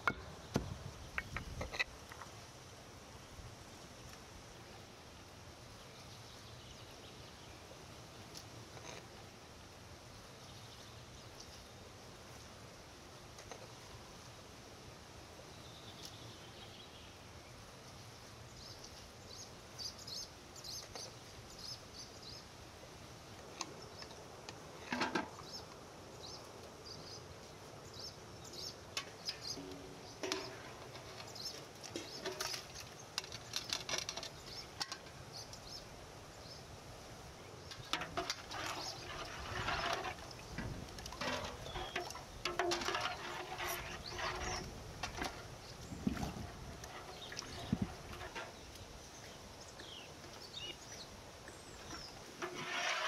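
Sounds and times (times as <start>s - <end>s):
small birds chirping: 18.2s - 22.5s, 25.4s - 36.7s, 37.4s - 52.4s
metal ladle clinking on pots: 29.0s - 31.1s.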